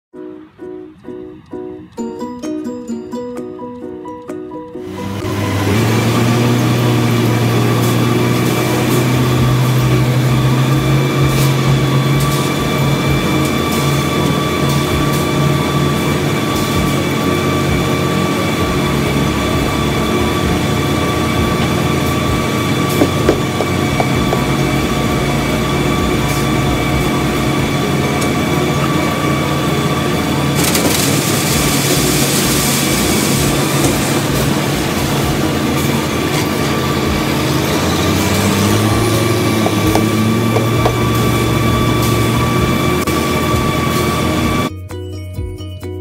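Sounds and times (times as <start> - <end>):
constant whining tones: 4.7 - 44.7
plant machinery hum: 4.8 - 44.7
concrete pouring rushing hiss: 4.9 - 44.7
knocks: 39.6 - 41.0.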